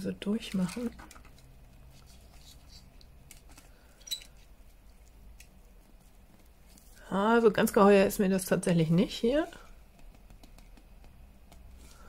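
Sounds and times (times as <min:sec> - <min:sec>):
plastic gadget rustles and ticks: 0:00.3 - 0:05.7.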